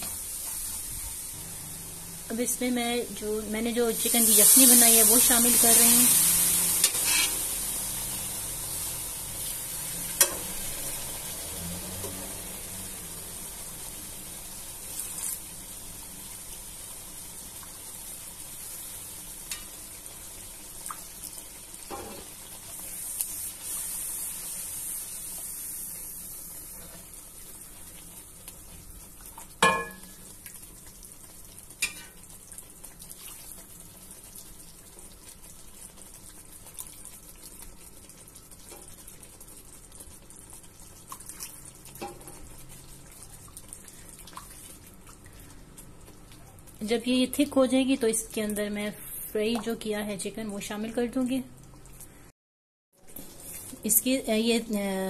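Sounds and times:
sauce sizzling and bubbling in a pan: 0.0 - 52.3
spatula knocking and scraping a pan: 29.6 - 30.2.

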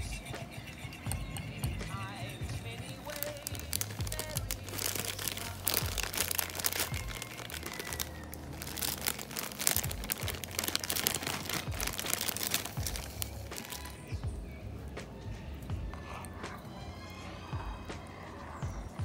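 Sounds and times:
dry mix pouring: 1.0 - 14.2
packet crinkling: 2.0 - 14.2.

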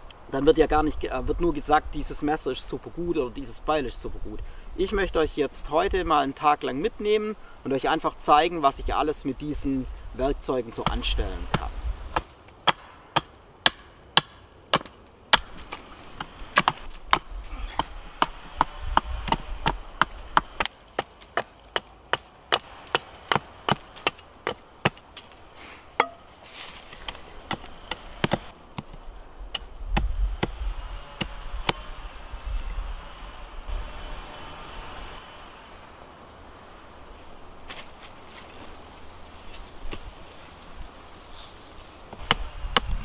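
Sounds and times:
hatchet chopping wooden pole: 10.8 - 25.4, 26.0 - 26.2, 27.0 - 31.9, 42.1 - 43.0.

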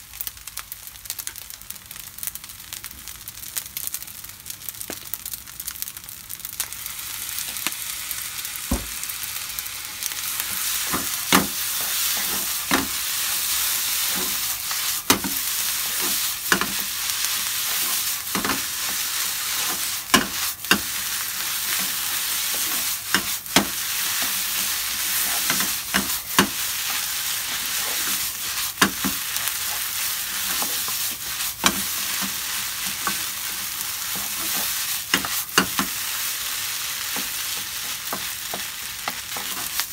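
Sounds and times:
food sizzling in frying pan: 0.0 - 39.9
spatula scraping pan: 10.4 - 39.9.

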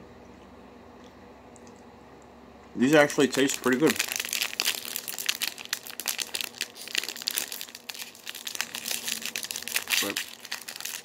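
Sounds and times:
plastic pouch crinkling: 3.0 - 11.0.

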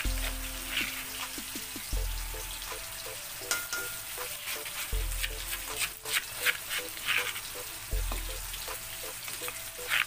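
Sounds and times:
paste sizzling in hot oil: 0.0 - 10.0
spatula scraping a pan: 4.2 - 7.7.

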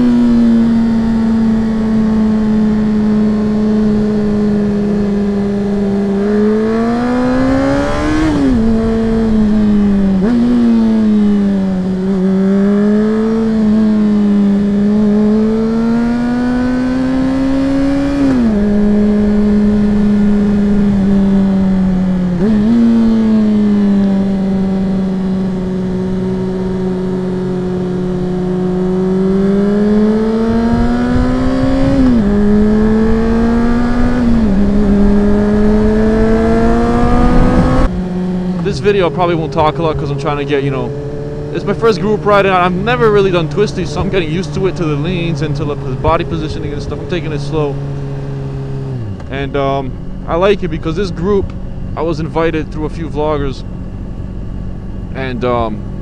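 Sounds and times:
motorcycle engine revving: 0.0 - 56.0
wind noise: 2.4 - 12.0, 29.0 - 38.8.

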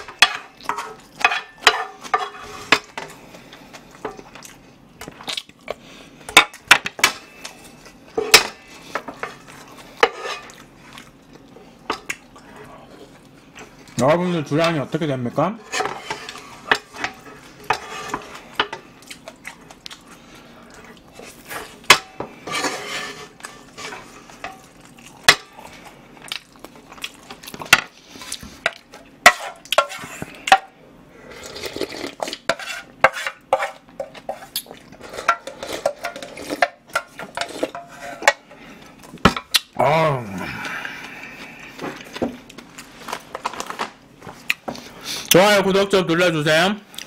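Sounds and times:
spatula scraping frying pan: 0.0 - 3.1, 8.2 - 10.8, 14.7 - 18.9, 21.2 - 24.7, 28.6 - 30.5, 31.8 - 38.5.

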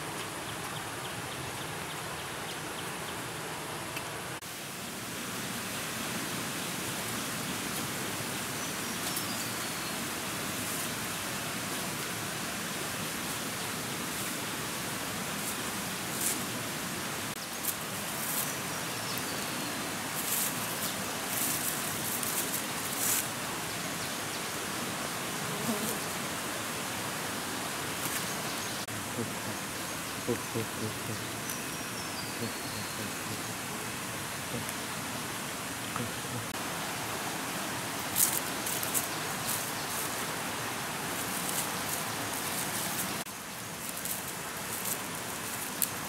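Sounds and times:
hissing forest ambience: 0.0 - 46.0
dry leaves crackling underfoot: 13.0 - 16.7, 17.3 - 23.7, 36.6 - 46.0.

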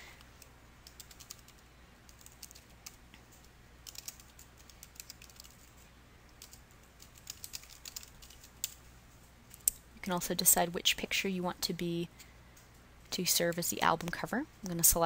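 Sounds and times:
typing on computer keyboard: 0.8 - 3.0, 3.8 - 5.8, 6.4 - 8.8.

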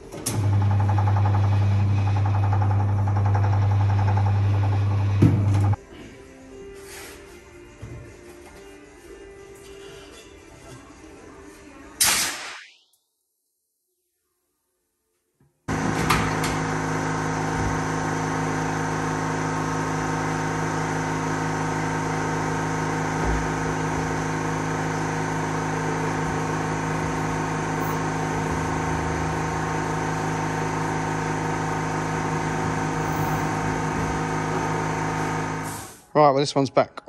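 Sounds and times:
workshop machinery humming: 0.0 - 11.9, 15.7 - 36.1.

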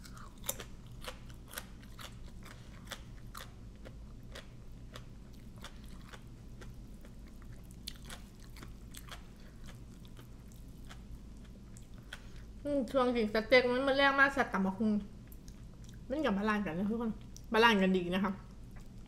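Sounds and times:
crunchy chewing: 0.0 - 12.6, 15.2 - 16.1.

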